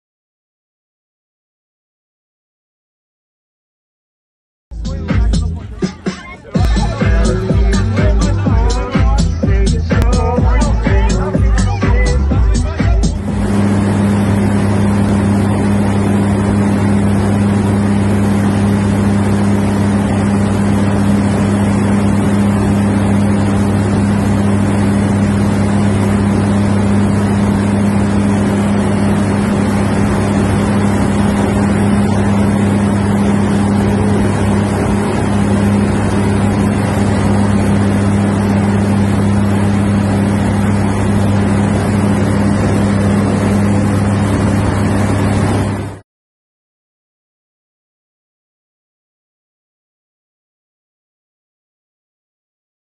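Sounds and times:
engine droning: 4.7 - 46.0
rushing noise: 12.0 - 46.0.

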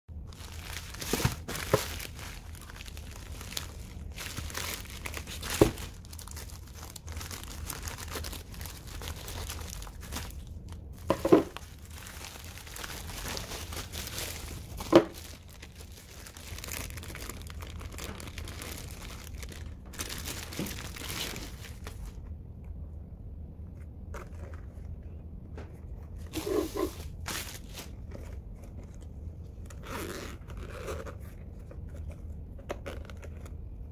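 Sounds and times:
plastic bag crinkling and tearing: 0.2 - 22.2, 26.3 - 29.0.

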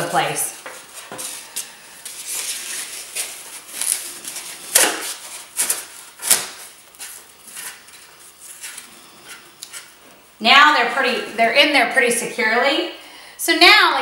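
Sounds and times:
foam rustling and scraping: 0.7 - 10.2.

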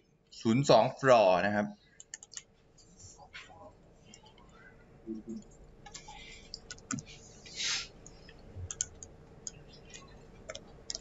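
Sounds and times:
faint steady hum: 0.0 - 11.0
computer mouse clicking: 2.0 - 2.5, 5.3 - 7.1, 8.0 - 11.0
short breathy hiss: 7.4 - 7.9.

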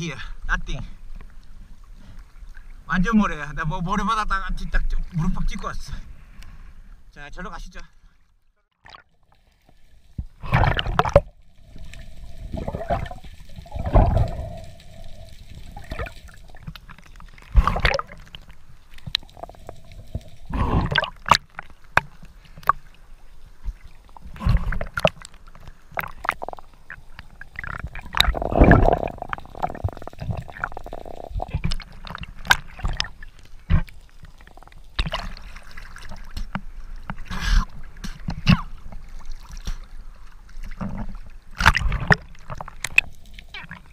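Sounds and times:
choppy water at surface: 8.8 - 43.9
bubbles: 10.3 - 22.0, 23.7 - 36.4
water gurgling underwater: 10.3 - 22.0, 23.7 - 36.3, 41.6 - 43.9.

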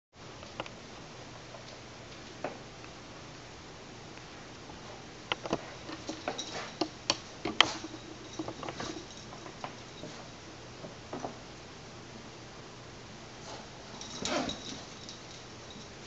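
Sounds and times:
dog tussling with plush toy: 13.4 - 15.9.

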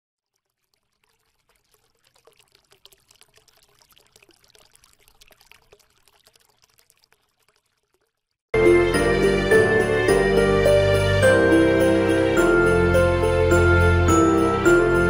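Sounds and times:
faint crackling fizz: 0.2 - 8.5.

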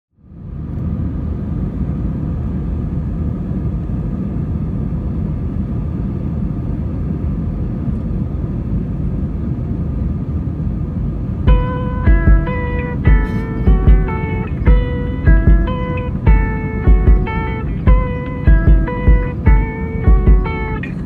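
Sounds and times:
faint engine whine: 0.1 - 21.0
jet airliner cabin rumble: 0.2 - 21.0.

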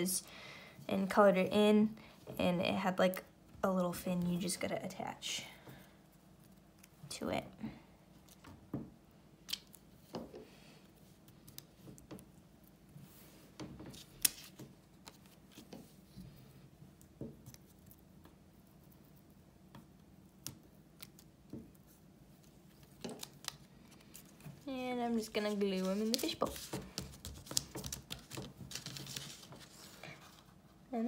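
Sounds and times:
soft paper rustles: 21.0 - 30.8.

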